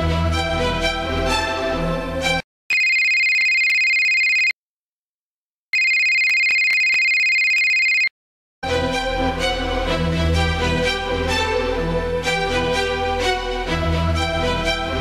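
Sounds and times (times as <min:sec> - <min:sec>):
music: 0:00.0 - 0:02.4, 0:08.6 - 0:15.0
phone ringtone: 0:02.7 - 0:04.6, 0:05.8 - 0:08.1.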